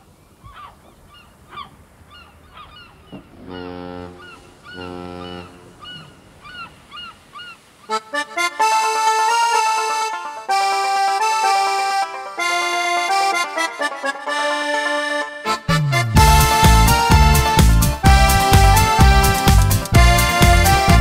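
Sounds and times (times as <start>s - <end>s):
gulls calling: 0.0s - 21.0s
accordion music: 7.9s - 21.0s.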